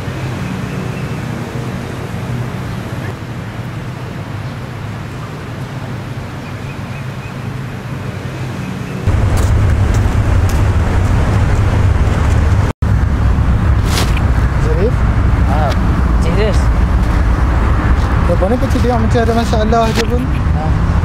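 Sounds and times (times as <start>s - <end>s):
outdoor background rumble: 0.0s - 21.0s.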